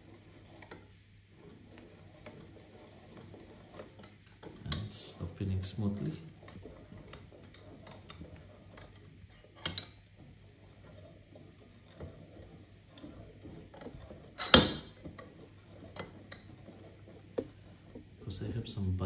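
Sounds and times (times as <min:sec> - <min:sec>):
vise handle clinking: 0:14.3 - 0:15.0.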